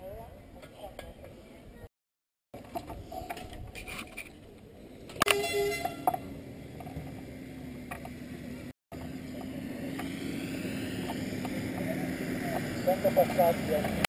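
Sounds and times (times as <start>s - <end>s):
car engine approaching: 6.2s - 14.0s.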